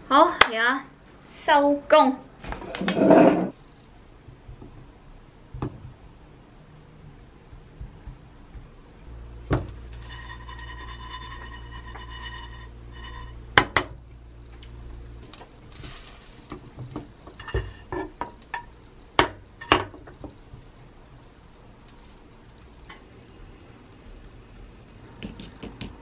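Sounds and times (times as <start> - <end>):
spatulas scraping frying pan: 2.8 - 3.6, 9.9 - 13.4, 15.6 - 18.7.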